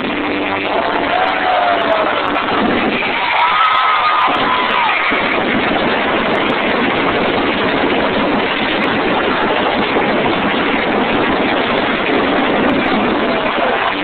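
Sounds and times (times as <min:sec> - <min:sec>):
crowd roaring: 0:00.5 - 0:06.6, 0:12.4 - 0:14.0.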